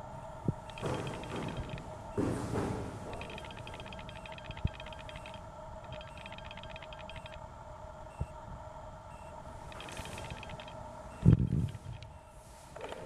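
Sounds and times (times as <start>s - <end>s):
steady faint tone: 0.0s - 12.8s
fast high chirping: 3.2s - 7.4s.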